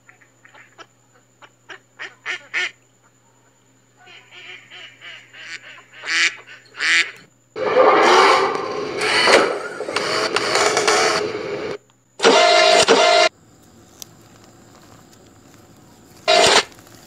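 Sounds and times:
ducks quacking and honking: 0:04.0 - 0:09.4
loud engine noise: 0:07.6 - 0:13.3, 0:16.2 - 0:16.8.

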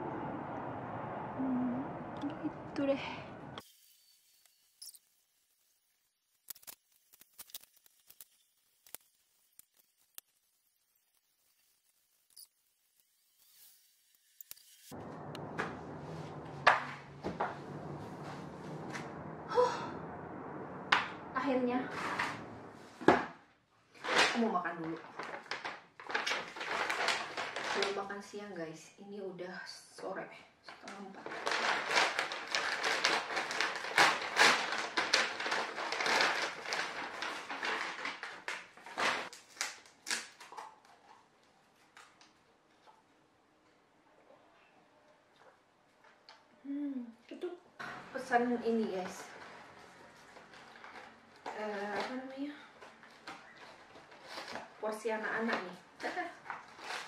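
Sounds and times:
low hum: 0:00.0 - 0:03.6, 0:14.9 - 0:23.4
paper bag rustling and crinkling: 0:24.0 - 0:28.3, 0:30.8 - 0:42.3, 0:48.9 - 0:57.0.

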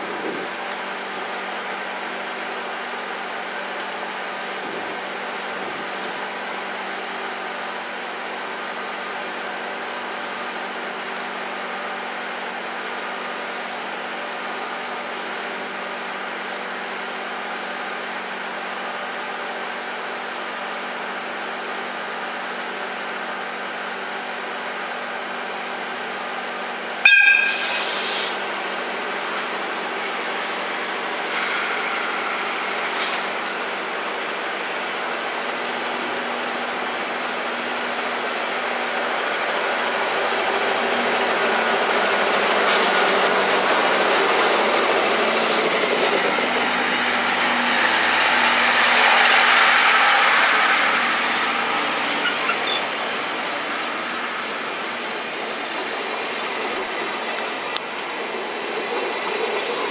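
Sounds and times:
locomotive hum: 0:00.0 - 0:59.9
train whistle blast: 0:27.0 - 0:28.4.

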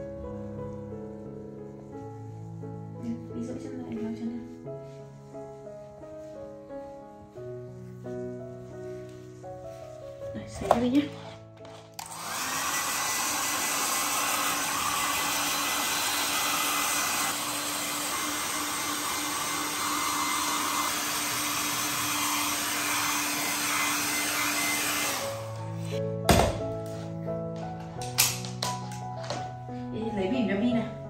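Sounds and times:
electric blower motor whining: 0:11.6 - 0:25.9.

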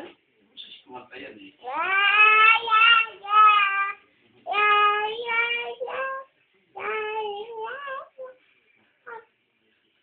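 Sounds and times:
child singing in a high voice: 0:01.6 - 0:08.4.

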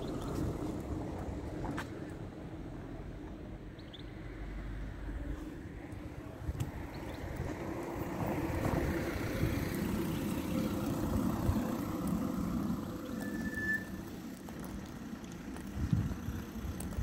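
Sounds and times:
passing vehicle rumble: 0:00.0 - 0:17.0.

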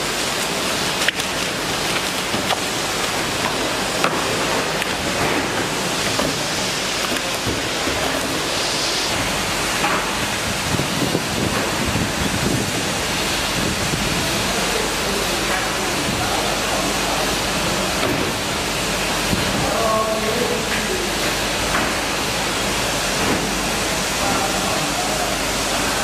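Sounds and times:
packaging machinery running: 0:00.0 - 0:26.0
hot-air blower rushing: 0:05.1 - 0:14.4.

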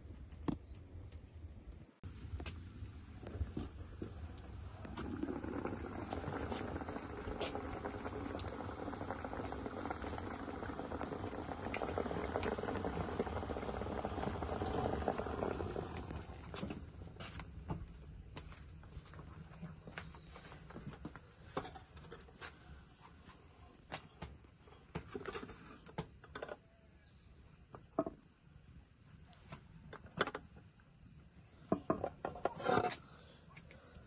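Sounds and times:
liquid boiling in a pot: 0:02.0 - 0:17.8.

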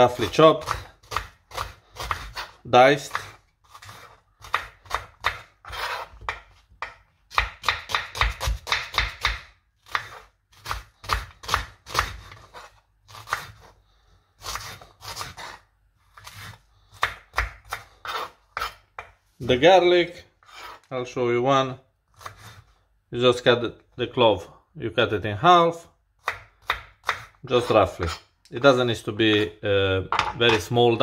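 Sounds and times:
knife chopping onion on board: 0:00.0 - 0:13.7, 0:14.4 - 0:19.2, 0:22.2 - 0:22.6, 0:26.2 - 0:28.2.

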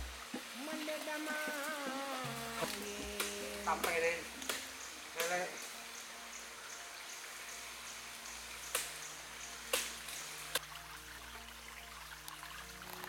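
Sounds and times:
stream running: 0:00.0 - 0:13.0
sharp snaps: 0:02.6 - 0:05.5.

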